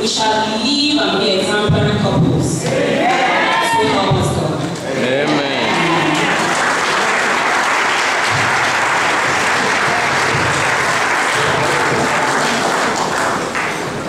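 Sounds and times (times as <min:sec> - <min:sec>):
crowd clapping: 0:05.0 - 0:14.0.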